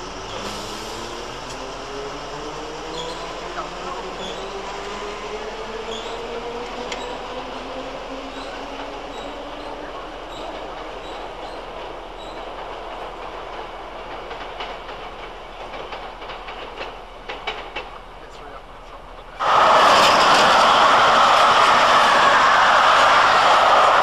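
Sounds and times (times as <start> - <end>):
wheels clicking over rail joints: 10.3 - 18.2
electric train motors whining: 19.4 - 24.0.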